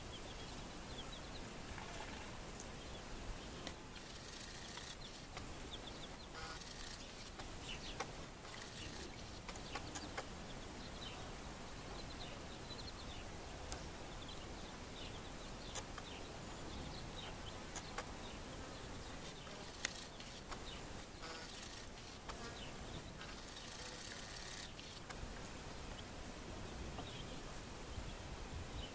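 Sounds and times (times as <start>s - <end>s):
background hiss: 0.0s - 28.9s
chicks peeping: 4.7s - 10.3s
sharp clicks: 19.7s - 20.6s.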